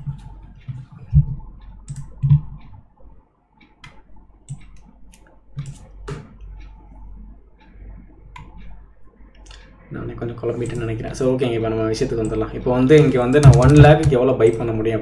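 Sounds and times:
soft low thuds: 0.0s - 3.2s
computer mouse clicking: 0.0s - 9.8s, 12.2s - 14.7s
low steady hum: 0.0s - 15.0s.

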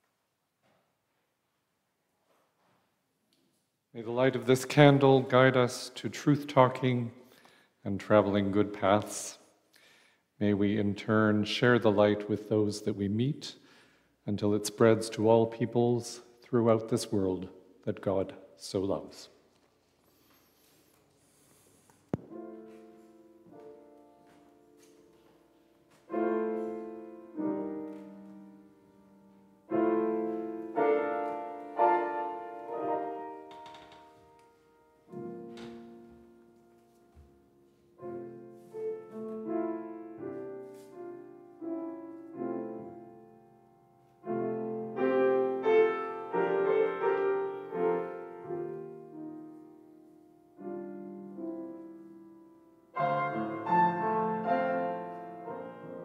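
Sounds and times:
grand piano chords: 21.5s - 56.0s.

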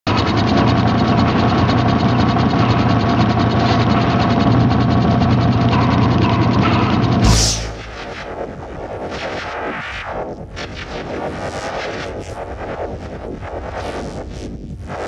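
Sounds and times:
steady low hum: 7.2s - 8.4s.

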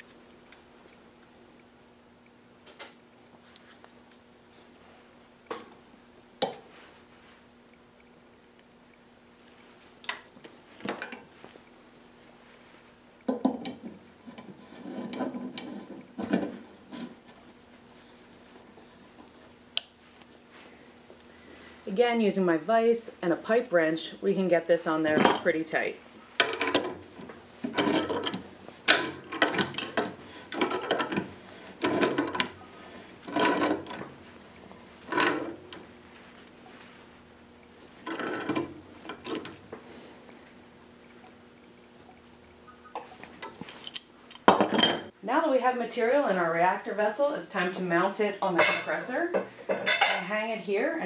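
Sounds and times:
metal fitting clinking and scraping: 26.4s - 27.0s, 27.7s - 32.6s.

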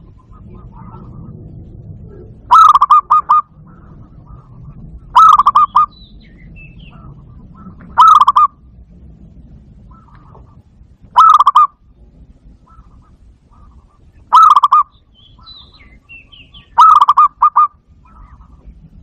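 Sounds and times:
dove cooing: 0.0s - 8.7s, 9.8s - 11.8s, 12.4s - 18.8s.

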